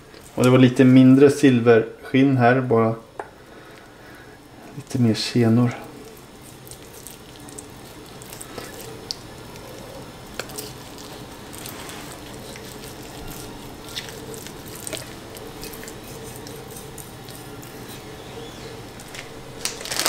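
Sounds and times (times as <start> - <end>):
wet squishing of meat: 4.6 - 20.0.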